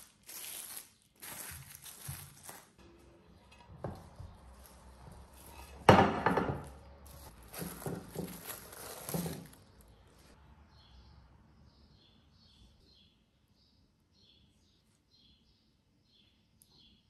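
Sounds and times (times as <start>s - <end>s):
plastic wrap crinkling: 0.0s - 2.8s, 3.9s - 5.8s, 7.0s - 10.4s.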